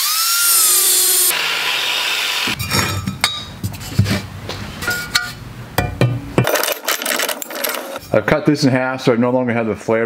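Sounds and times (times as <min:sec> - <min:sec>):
angle grinder cutting steel pipe: 0:00.0 - 0:02.9
metal knocks and clinks: 0:04.9 - 0:08.0.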